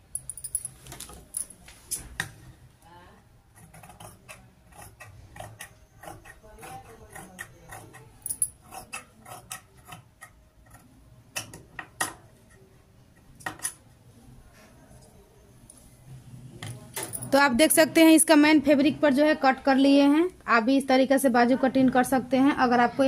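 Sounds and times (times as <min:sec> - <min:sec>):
scissors snipping fabric: 0:03.6 - 0:11.6.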